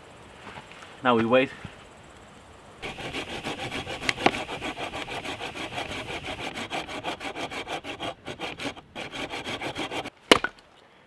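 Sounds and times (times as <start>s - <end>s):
hand saw cutting through log: 2.8s - 10.1s.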